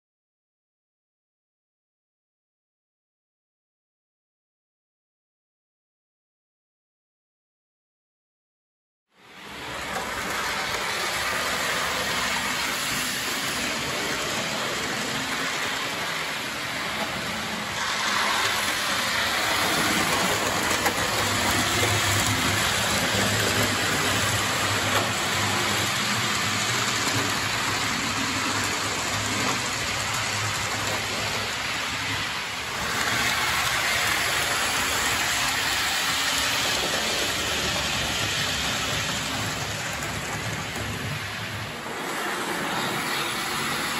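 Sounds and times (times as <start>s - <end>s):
model train wheels on track: 9.2s - 43.9s.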